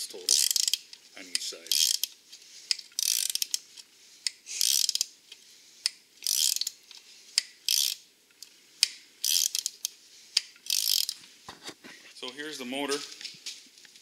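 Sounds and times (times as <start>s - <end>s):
ratchet wrench clicking: 0.3s - 2.1s, 2.7s - 3.6s, 4.3s - 5.1s, 5.8s - 6.8s, 7.4s - 8.0s, 8.8s - 11.2s
sharp ratchet ticks: 0.3s - 2.1s, 2.7s - 3.6s, 4.2s - 5.1s, 5.8s - 6.8s, 7.4s - 8.0s, 8.8s - 11.2s.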